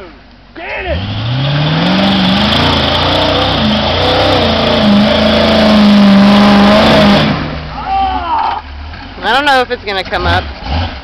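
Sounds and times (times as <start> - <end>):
tires spinning in mud: 0.8 - 11.0
truck engine revving hard: 0.8 - 11.0.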